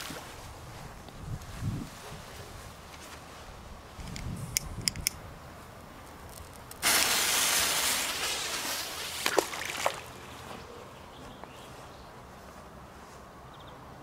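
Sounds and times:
small clicks: 4.0s - 5.2s
firecracker fuse hissing: 6.7s - 9.2s
splash into water: 6.8s - 10.1s.

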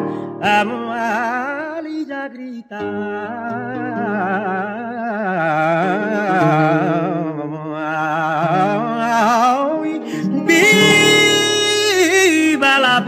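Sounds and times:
person singing flamenco: 0.0s - 13.0s
backing notes: 10.3s - 13.0s.

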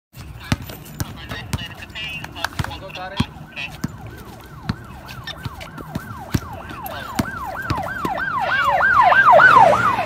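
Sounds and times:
basketball bouncing: 0.2s - 8.4s
siren yelping: 2.8s - 10.0s.

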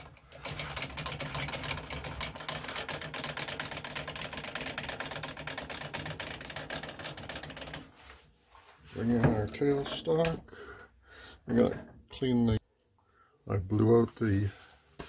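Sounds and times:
metal lathe gear clatter: 0.0s - 7.9s.

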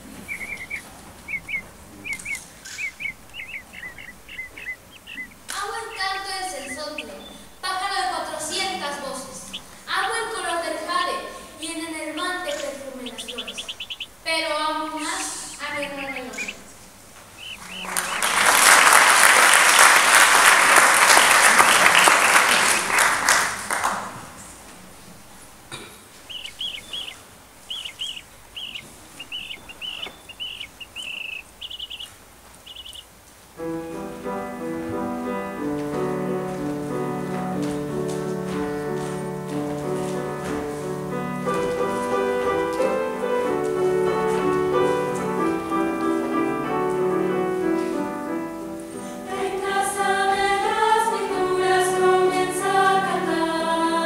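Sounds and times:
high bird-like chirps: 0.2s - 7.7s, 12.1s - 14.2s, 15.1s - 16.7s, 17.4s - 18.3s, 26.2s - 33.1s
piano chords: 3.0s - 16.6s, 33.6s - 54.0s
applause: 17.6s - 24.4s.

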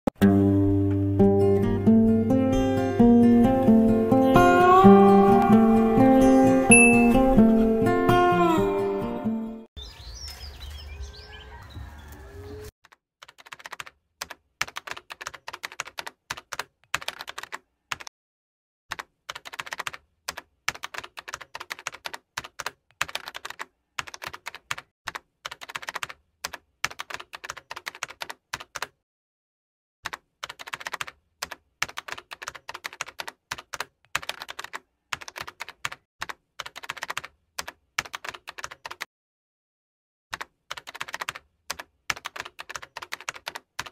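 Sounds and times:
keyboard typing: 13.2s - 18.1s, 18.9s - 29.0s, 30.1s - 39.1s, 40.3s - 43.9s.

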